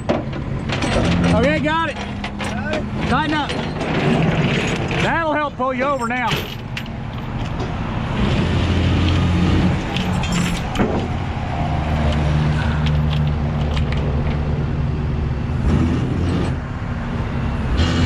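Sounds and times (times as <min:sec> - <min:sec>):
truck engine running: 0:00.0 - 0:18.0
hydraulic winch pulling: 0:00.6 - 0:05.4
metallic clinks of chain: 0:10.0 - 0:10.8.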